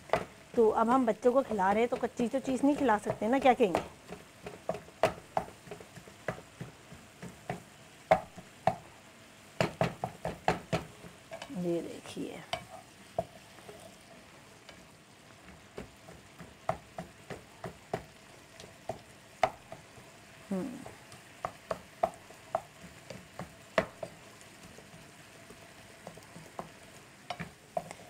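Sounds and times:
spatula knocking on pan: 0:00.0 - 0:08.9, 0:09.6 - 0:11.5, 0:15.5 - 0:20.0, 0:20.8 - 0:28.0
masala sizzling in a pan: 0:00.0 - 0:28.0
spatula scraping a pan: 0:12.5 - 0:17.3, 0:22.8 - 0:28.0.

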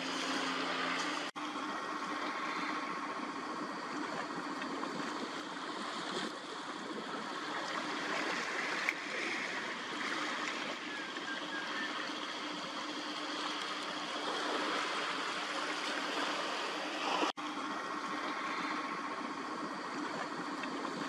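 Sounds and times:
rushing harbour noise: 0:00.0 - 0:21.0.

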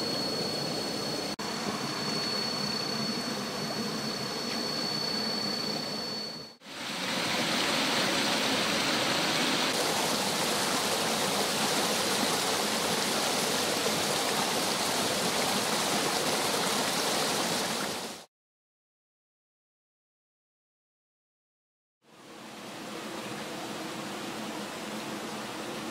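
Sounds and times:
thin high steady tone: 0:00.0 - 0:18.0
stream water rushing over rocks: 0:06.7 - 0:18.3.

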